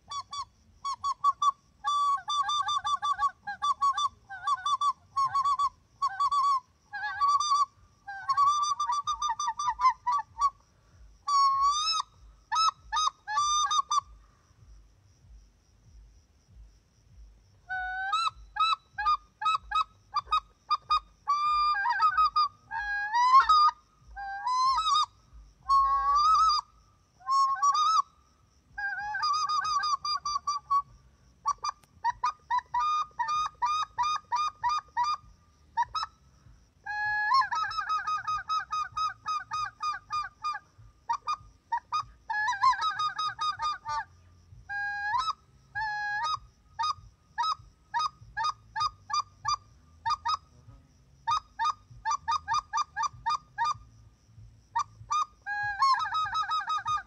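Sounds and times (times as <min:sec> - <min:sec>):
duck call quacking: 0:54.8 - 0:57.0.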